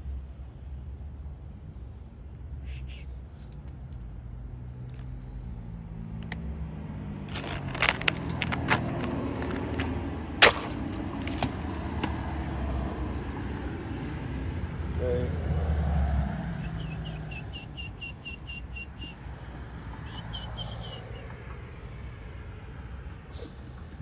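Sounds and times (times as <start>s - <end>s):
squirrel gnawing and crunching ice: 6.0s - 12.2s.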